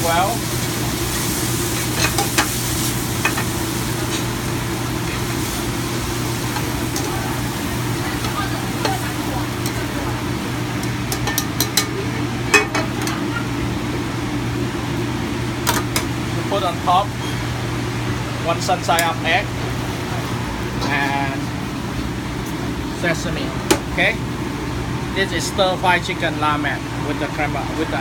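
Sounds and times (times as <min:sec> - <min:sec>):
noodles sizzling in a pan: 0:00.0 - 0:16.0
kitchen ventilation hum: 0:00.0 - 0:28.0
tongs clicking on pan: 0:10.8 - 0:13.2.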